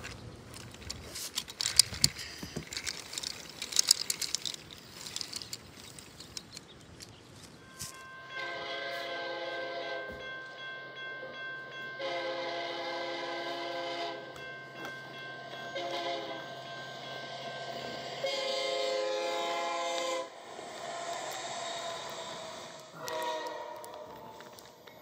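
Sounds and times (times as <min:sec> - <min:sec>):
locomotive air horn blasts: 0:07.8 - 0:10.3, 0:12.0 - 0:14.4, 0:15.7 - 0:16.6, 0:17.2 - 0:20.4, 0:22.0 - 0:24.6
steady low hum: 0:20.2 - 0:23.0.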